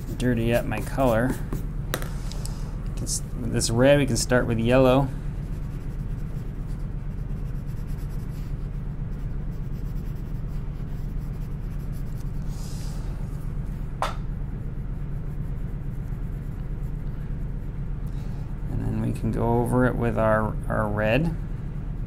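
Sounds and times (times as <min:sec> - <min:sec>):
pencil scratching on paper: 0:00.0 - 0:01.7, 0:03.4 - 0:13.1, 0:14.6 - 0:17.8
low hum: 0:00.0 - 0:22.0.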